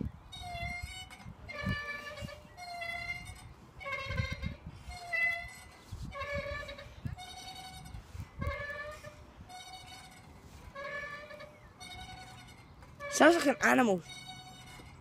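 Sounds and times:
swing chains squeaking: 0:00.0 - 0:15.0.

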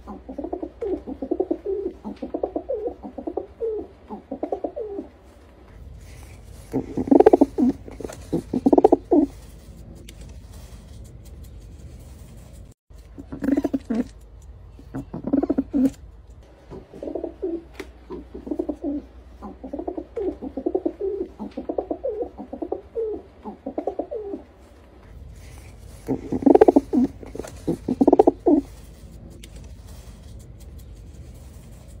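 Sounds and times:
pigeon cooing: 0:00.0 - 0:05.3, 0:06.1 - 0:09.4, 0:13.2 - 0:14.2, 0:14.8 - 0:16.1, 0:16.7 - 0:24.8, 0:25.4 - 0:29.0.

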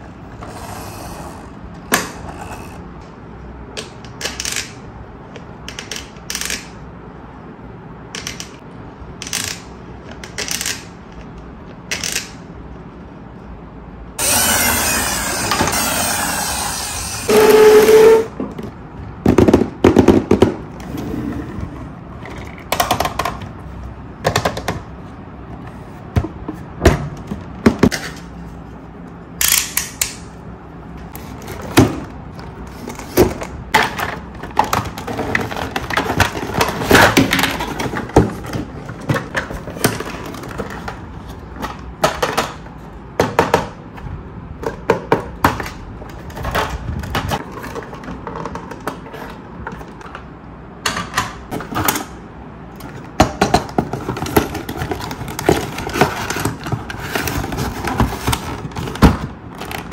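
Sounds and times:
cardboard insert rustling: 0:53.9 - 0:59.9.

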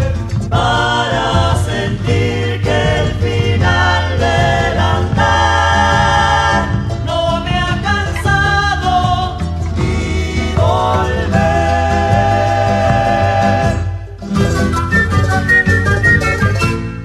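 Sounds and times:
folk song with sung vocals: 0:00.0 - 0:17.0
steady bass line: 0:00.0 - 0:17.0.

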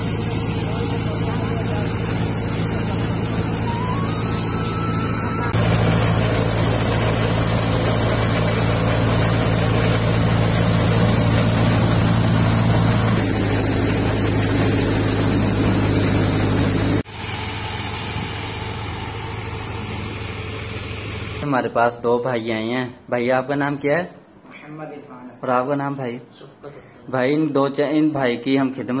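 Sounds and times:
thresher whirring and rushing: 0:00.0 - 0:21.4
tractor engine drone: 0:00.0 - 0:21.4.

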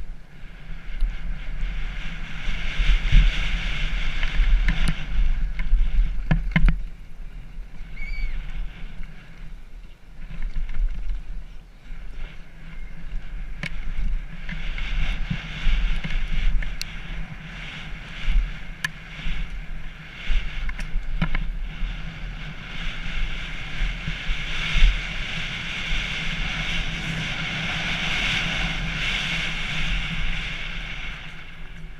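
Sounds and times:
wind rushing over camera: 0:00.0 - 0:31.9
bike knocks and rattles: 0:04.0 - 0:07.0, 0:09.8 - 0:11.5, 0:20.6 - 0:21.6.

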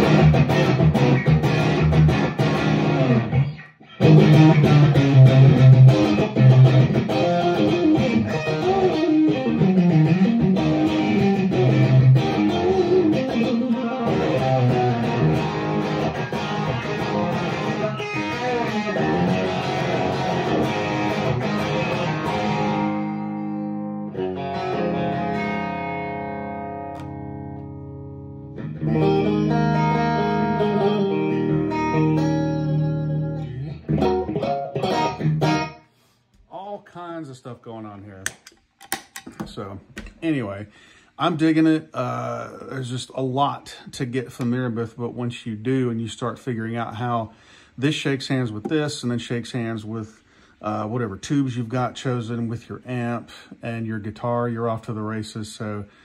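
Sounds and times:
overdriven electric guitar: 0:00.0 - 0:36.0.

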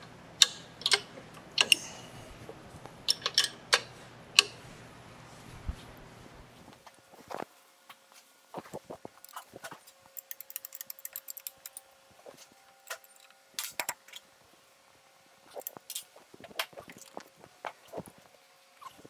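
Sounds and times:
wrench clicking on bolts: 0:00.4 - 0:01.9, 0:03.1 - 0:04.6, 0:10.2 - 0:11.8.

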